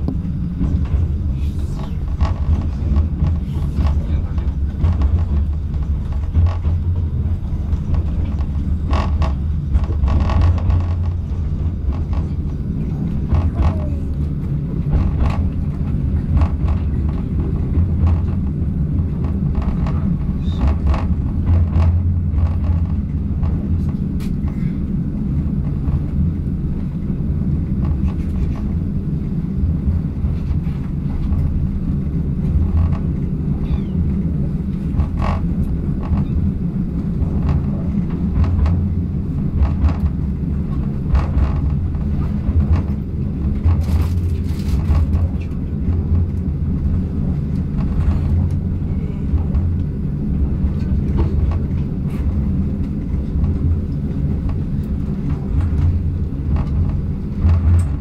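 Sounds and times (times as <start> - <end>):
track clicks and knocks: 0.0 - 58.0
train rumbling on track: 0.0 - 58.0.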